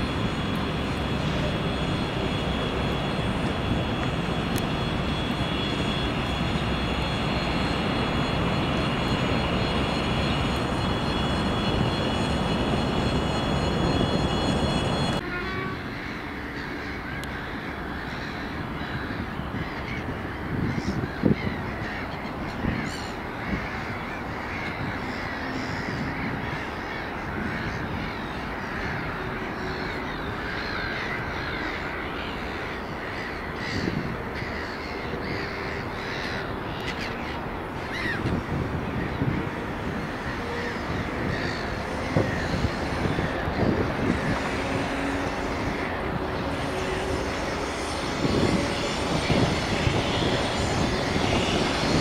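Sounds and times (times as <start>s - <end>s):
train passing: 0.0s - 52.0s
crows cawing: 15.9s - 38.4s, 40.0s - 52.0s.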